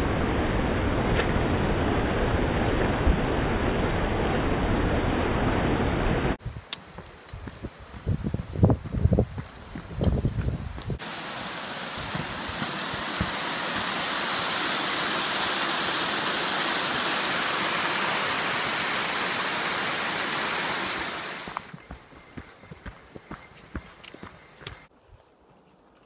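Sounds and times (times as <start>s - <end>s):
stream rushing over rocks: 6.4s - 23.0s.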